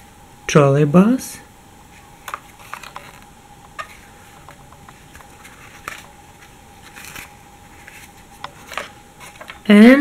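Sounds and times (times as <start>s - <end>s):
faint steady hum: 0.0s - 10.0s
paper taps and rustles: 3.8s - 9.6s.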